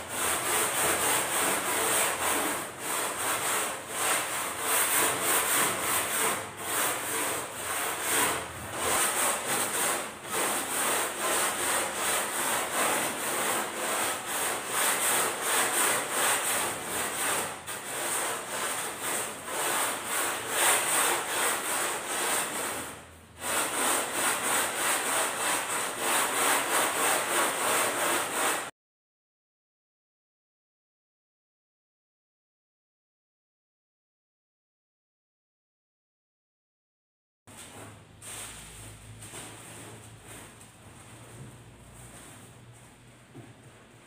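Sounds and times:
sanding block scratching foam: 0.0s - 28.7s.

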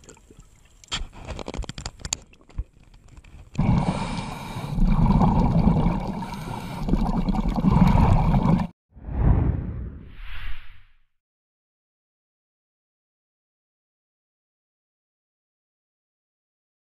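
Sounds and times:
faint underwater clicks and knocks: 0.0s - 3.6s.

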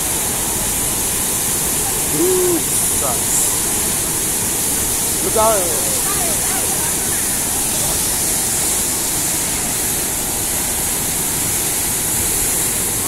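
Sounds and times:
rushing floodwater: 0.0s - 13.0s.

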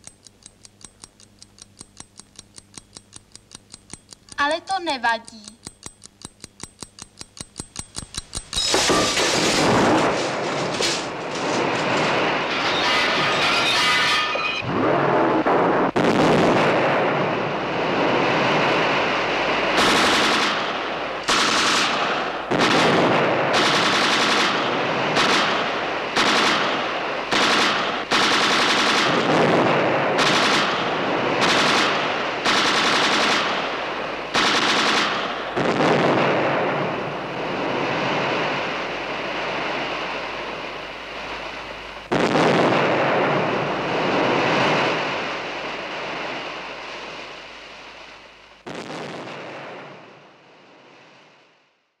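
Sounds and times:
machine-gun fire bursts: 8.6s - 12.4s, 19.7s - 36.9s.

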